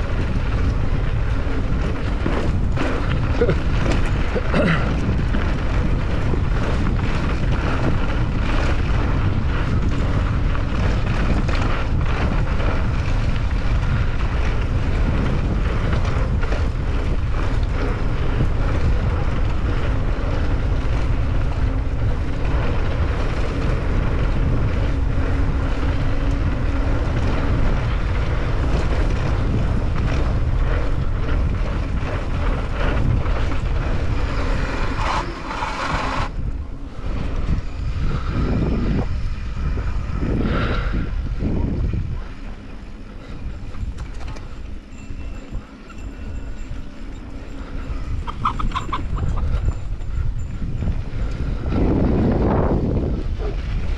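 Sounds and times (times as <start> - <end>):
bike tyres on dirt track: 0.0 - 53.9
wind buffeting microphone: 0.0 - 53.9.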